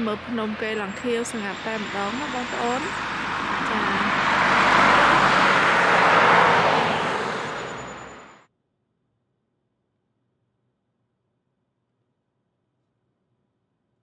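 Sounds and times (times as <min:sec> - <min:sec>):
car road and tyre noise: 0:00.0 - 0:08.5.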